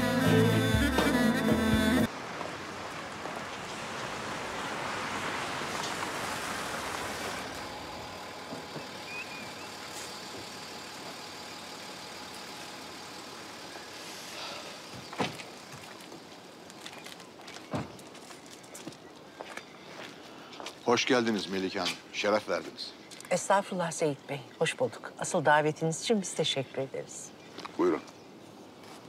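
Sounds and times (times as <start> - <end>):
car engine running: 7.5 - 15.7.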